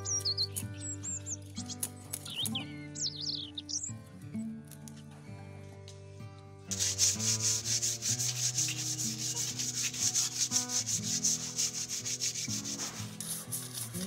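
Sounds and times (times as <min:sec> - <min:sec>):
soft background music: 0:00.0 - 0:14.0
leaf scrubbing wet fish skin: 0:06.7 - 0:14.0.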